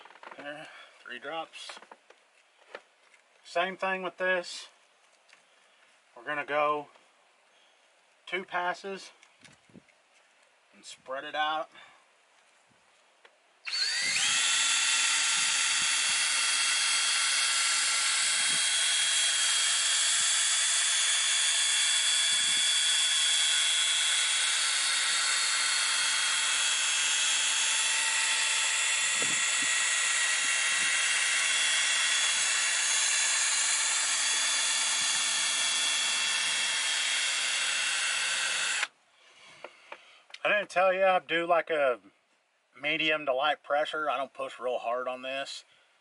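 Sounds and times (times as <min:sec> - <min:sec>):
cordless drill motor whine: 0:13.6 - 0:39.0.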